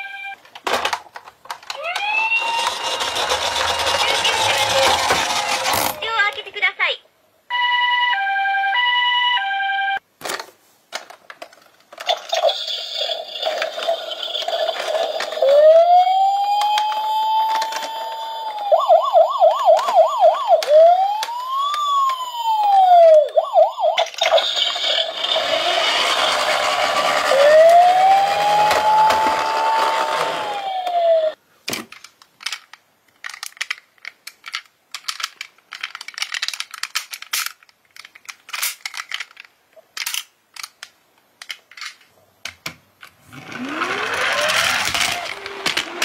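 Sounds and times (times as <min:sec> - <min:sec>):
toy ambulance two-tone siren: 0:01.8 - 0:05.7, 0:07.5 - 0:10.0, 0:15.3 - 0:31.4, 0:43.7 - 0:46.0
toy police car electronic siren: 0:01.8 - 0:05.8, 0:07.5 - 0:10.0, 0:15.2 - 0:31.4, 0:43.6 - 0:46.0.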